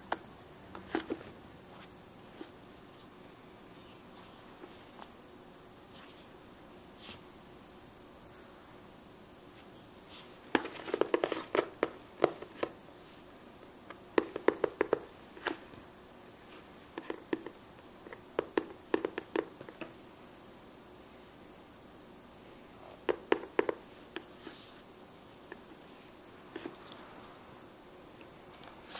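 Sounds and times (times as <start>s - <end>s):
fingers tapping cardboard box: 10.6s - 12.8s, 14.2s - 15.1s, 18.4s - 19.8s, 23.1s - 24.3s.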